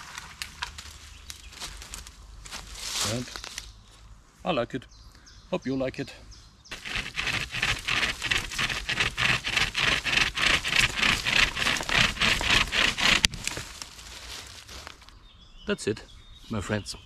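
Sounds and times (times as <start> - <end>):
branch cracking: 0.0 - 2.1, 10.8 - 15.1
hand chainsaw sawing wood: 6.7 - 13.4.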